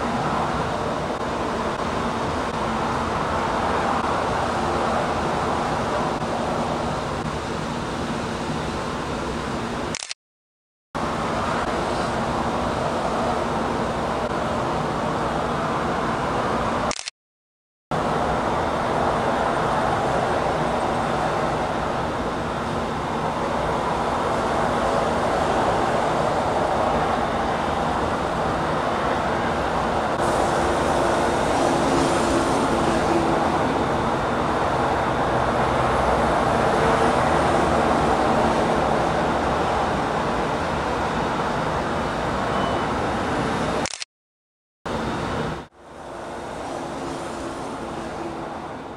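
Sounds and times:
city traffic noise: 0.0 - 10.2, 11.0 - 17.1, 17.9 - 44.1, 44.9 - 48.9.

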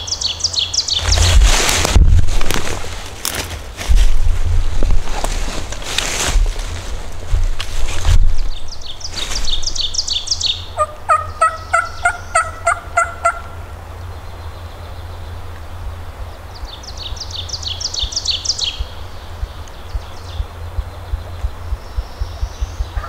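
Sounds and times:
low wind rumble: 0.0 - 23.0
wild turkey yelping: 10.8 - 13.6.

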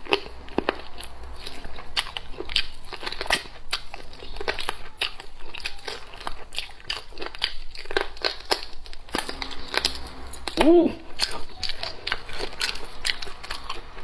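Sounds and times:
chewing and crunching: 0.0 - 14.0.

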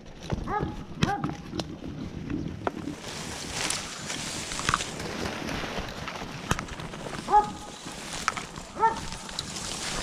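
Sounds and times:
dog bark: 0.4 - 1.4, 7.3 - 7.7, 8.8 - 9.1
footsteps in dry leaves: 2.7 - 10.0
twigs snapping: 2.7 - 10.0.

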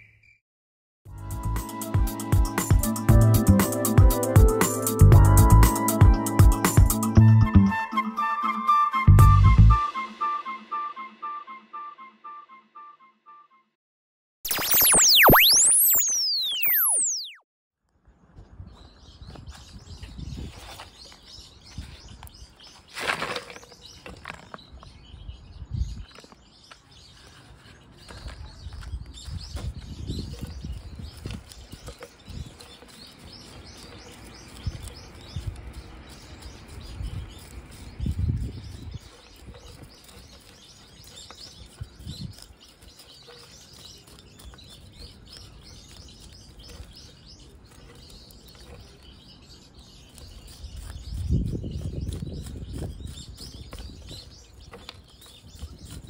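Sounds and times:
small birds chirping: 14.5 - 17.4, 18.0 - 56.0
root hook raking through soil: 20.5 - 24.8, 27.0 - 56.0
soil crumbling and rustling: 22.2 - 24.9.

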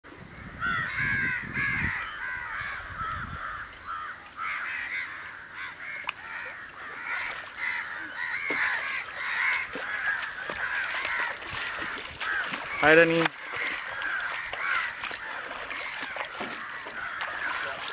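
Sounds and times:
flock of birds cawing: 0.5 - 17.9.

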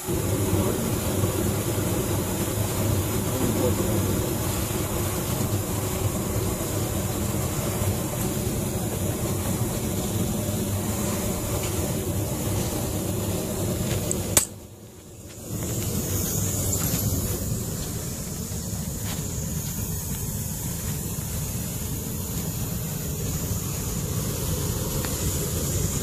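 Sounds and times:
compressed air rushing: 0.0 - 26.0.

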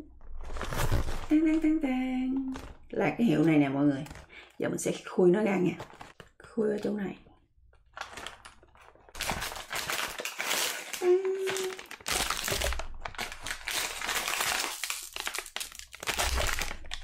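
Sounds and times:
foil wrappers crinkling: 0.3 - 4.4, 5.6 - 7.0, 7.8 - 17.0
cardboard box being opened: 0.4 - 1.3.

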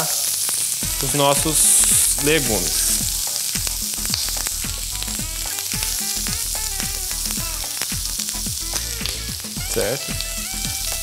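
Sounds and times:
vegetables sizzling in a frying pan: 0.0 - 11.0.

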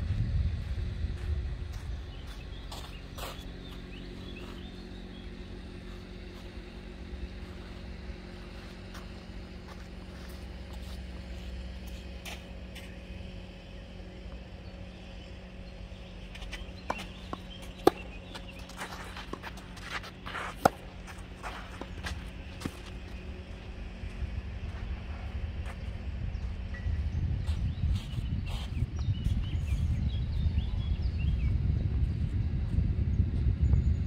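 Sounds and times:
steady low hum: 0.0 - 34.0
tennis ball struck with racket: 16.9 - 18.4, 19.3 - 21.2.

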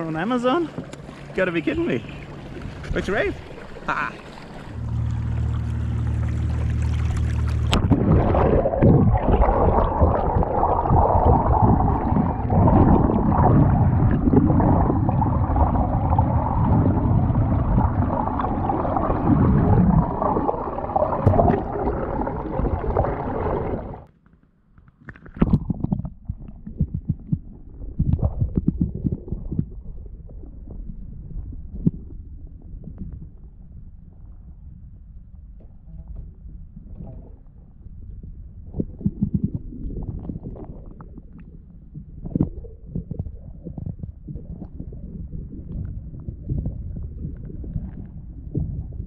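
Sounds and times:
muffled underwater water rush: 0.0 - 24.1, 25.1 - 49.0
steady low hum: 2.0 - 24.1
bubbly knocks: 7.0 - 23.9.

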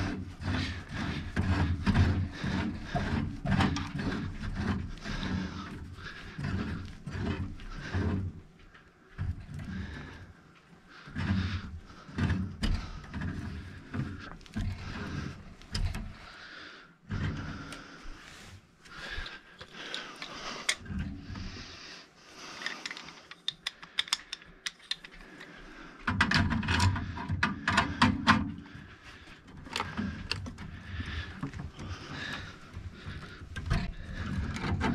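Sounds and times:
metal tools clicking and clinking: 22.6 - 25.2.

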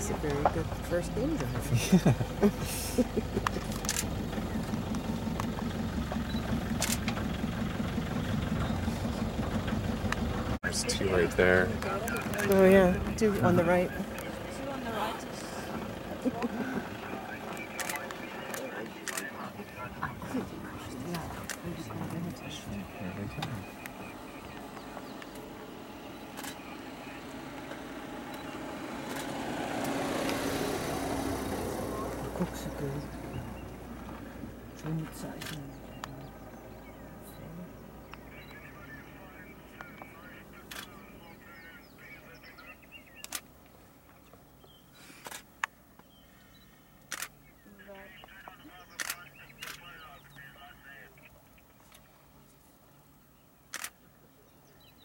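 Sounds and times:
vehicle engine idling: 0.0 - 55.0.

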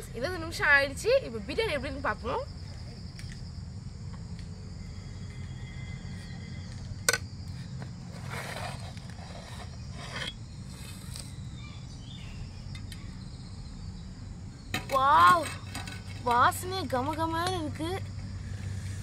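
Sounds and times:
scraping and rustling of coals: 6.1 - 11.4.

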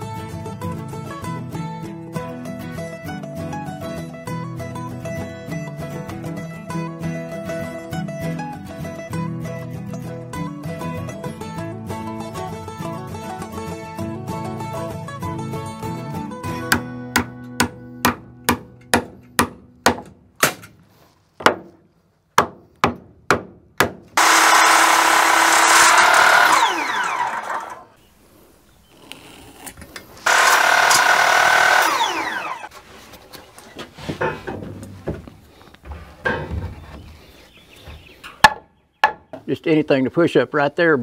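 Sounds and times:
circular saw cutting board: 24.2 - 28.0, 30.2 - 32.7.

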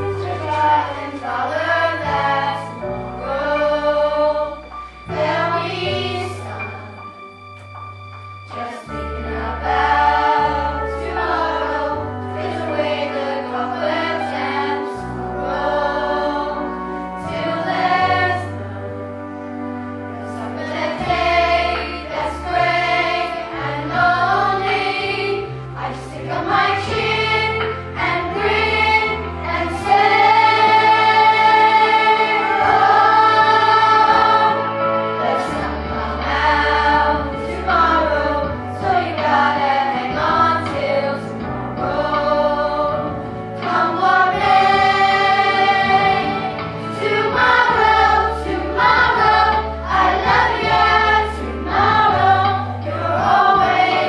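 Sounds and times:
instrumental accompaniment with bass: 0.0 - 54.0
cast singing together: 20.4 - 54.0.

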